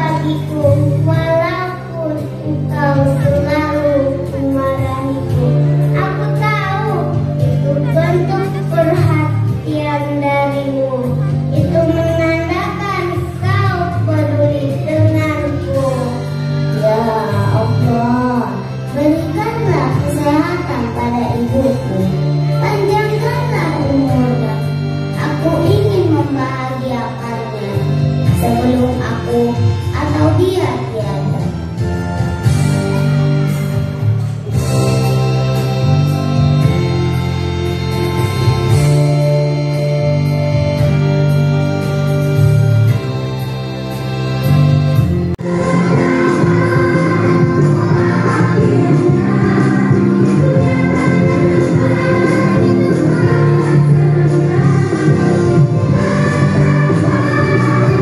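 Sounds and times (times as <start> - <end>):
musical accompaniment: 0.0 - 58.0
children singing together: 45.4 - 58.0.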